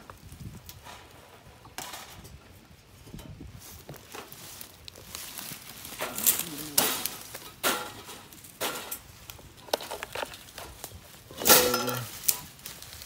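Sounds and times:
rustling in leaves: 0:00.0 - 0:13.0
wire cage traps rattling: 0:05.6 - 0:12.6.

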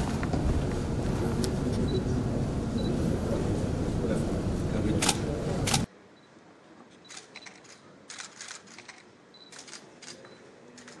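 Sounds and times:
camera shutters clicking: 0:05.0 - 0:05.9, 0:07.1 - 0:11.0.

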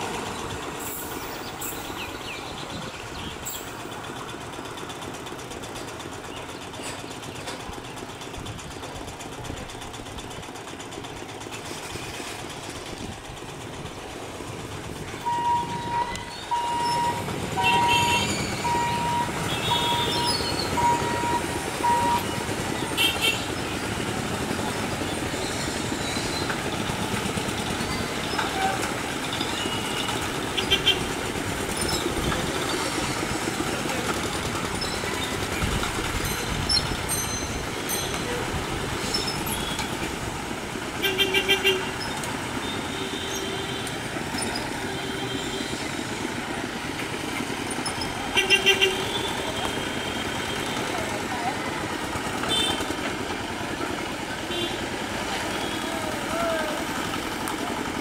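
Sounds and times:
road traffic drone: 0:00.0 - 0:58.0
horn beeps: 0:15.2 - 0:23.5.

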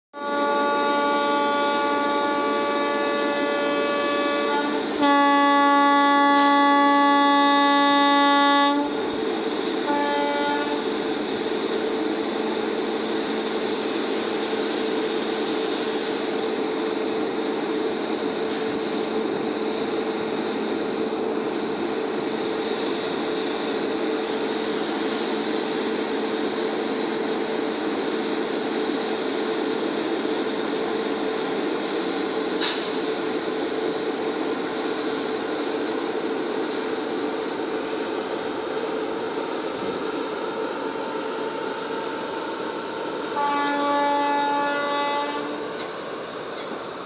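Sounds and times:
locomotive horn blasts: 0:00.2 - 0:09.0, 0:09.8 - 0:10.9, 0:43.2 - 0:45.9
locomotive humming: 0:00.2 - 0:47.0.

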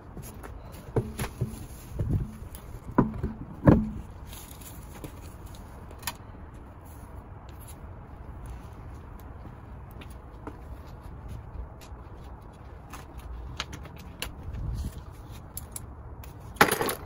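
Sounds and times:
wheel thumping against hub: 0:00.9 - 0:04.2.

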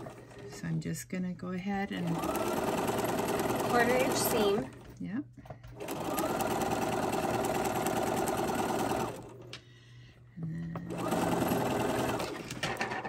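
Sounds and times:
sewing machine stitching: 0:00.0 - 0:00.7, 0:01.8 - 0:05.0, 0:05.7 - 0:09.5, 0:10.8 - 0:13.0.

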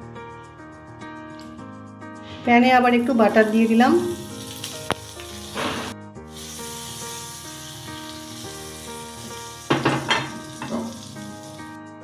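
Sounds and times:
butter sizzling in frying pan: 0:03.0 - 0:11.8.

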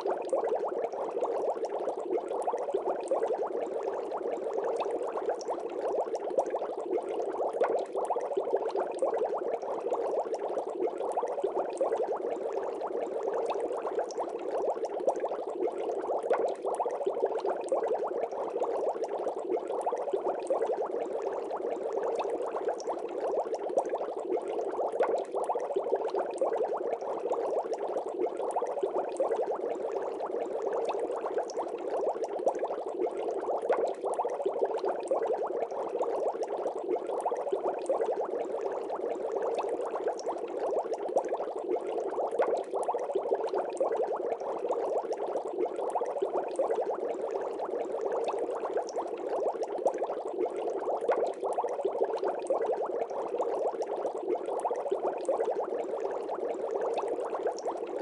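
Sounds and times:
water bubbling: 0:00.0 - 0:58.0.

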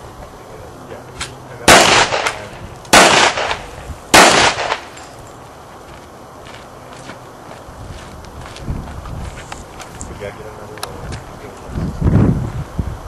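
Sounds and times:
suppressed pistol shots: 0:01.2 - 0:05.0.

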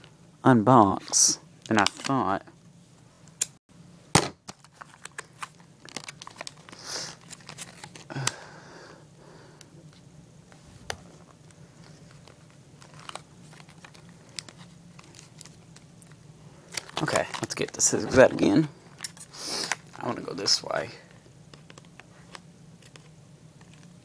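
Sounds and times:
plastic packaging crinkling: 0:04.5 - 0:08.2, 0:11.8 - 0:20.1.

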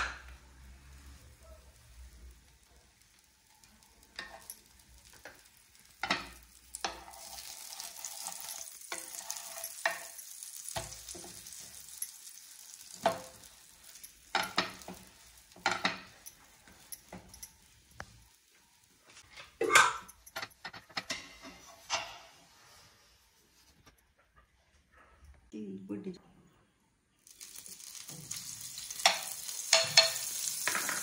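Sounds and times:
bread sizzling in a pan: 0:00.0 - 0:19.6, 0:27.2 - 0:31.0.

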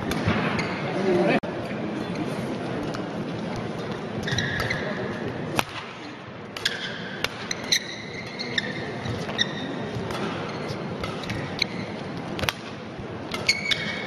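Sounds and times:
low murmur in hall: 0:00.0 - 0:14.0
racket hitting shuttlecock: 0:03.8 - 0:14.0
shoe squeaks on court: 0:04.2 - 0:05.2, 0:06.6 - 0:12.0, 0:13.4 - 0:14.0.

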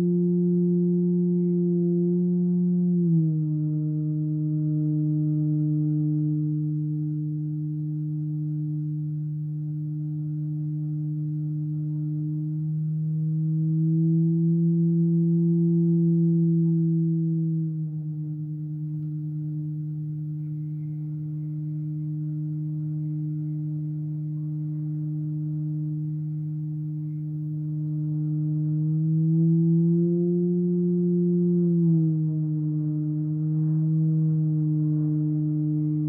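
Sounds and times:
string feedback drone: 0:00.0 - 0:36.0.

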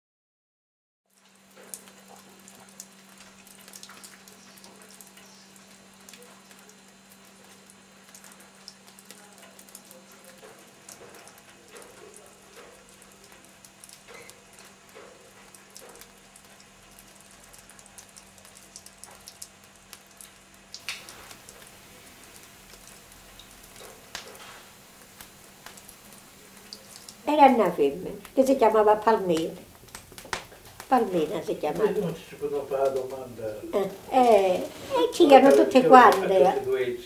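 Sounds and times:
rain patter and drips: 0:01.0 - 0:37.0
small scattered ticks: 0:01.1 - 0:27.4
low steady hum: 0:01.2 - 0:37.0.

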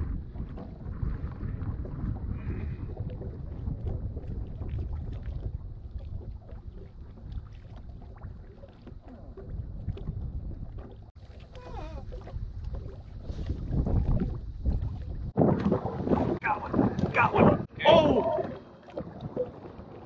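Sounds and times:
water lapping against hull: 0:00.0 - 0:20.0
wind rumbling on microphone: 0:00.0 - 0:20.0
light splashes and taps: 0:03.1 - 0:15.8.

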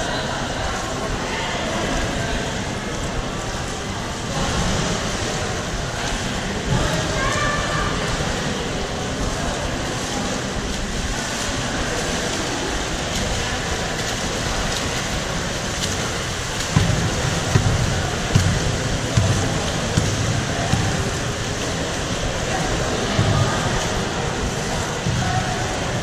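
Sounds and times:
distant voices: 0:00.0 - 0:26.0
water splashing: 0:00.0 - 0:26.0
low thumps: 0:16.6 - 0:21.6.

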